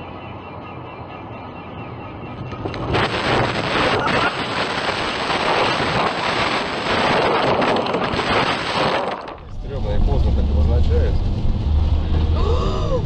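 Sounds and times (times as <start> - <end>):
car crashing rough rumbling: 2.7 - 11.2.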